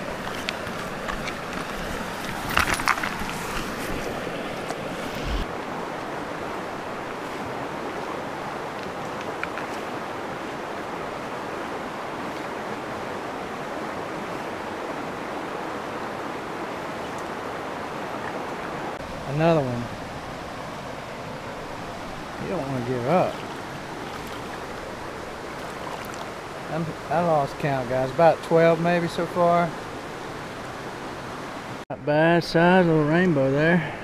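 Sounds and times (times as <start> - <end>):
creek flowing over rocks: 0.0 - 31.8
fish splashing in water: 21.6 - 26.7.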